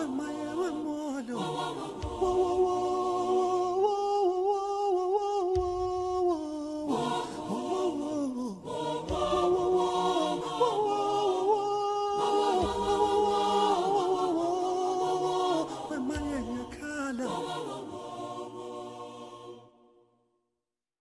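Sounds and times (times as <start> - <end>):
voices singing chant-like notes: 0.0 - 20.0.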